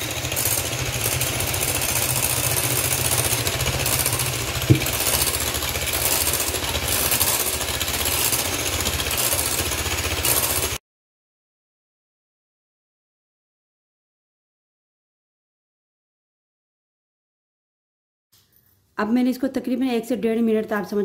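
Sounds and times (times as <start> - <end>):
electric hand mixer whipping batter: 0.0 - 10.8
sharp knock: 4.7 - 5.0.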